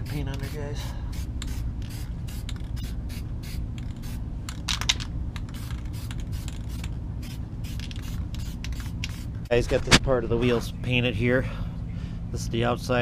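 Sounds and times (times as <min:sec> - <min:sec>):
steady low rumble: 0:00.0 - 0:13.0
spray can hissing: 0:01.2 - 0:04.2, 0:05.5 - 0:09.4.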